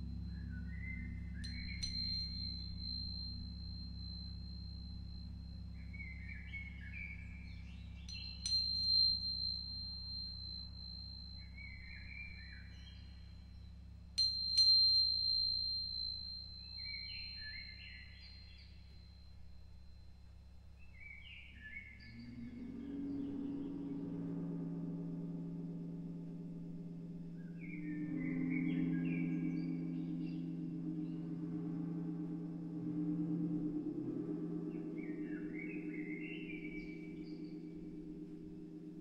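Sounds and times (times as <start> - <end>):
metal chime ringing: 0.0 - 5.7, 8.1 - 11.4
low steady drone: 0.0 - 21.2, 21.8 - 39.0
soft falling note runs: 22.1 - 39.0.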